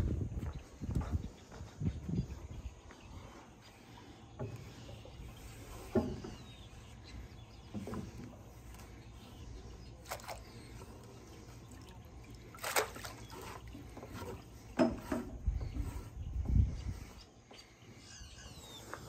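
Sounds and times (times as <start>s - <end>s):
soft splashes: 9.8s - 14.5s
net splashing into water: 12.5s - 13.3s.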